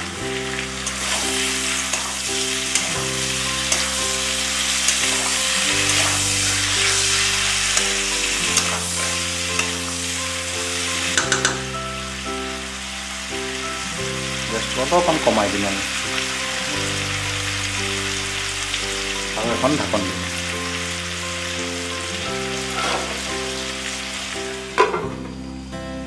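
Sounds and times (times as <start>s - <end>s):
food sizzling in hot oil: 0.0s - 25.7s
spatula clicking on pan: 3.6s - 4.0s, 7.8s - 9.9s, 11.2s - 11.7s.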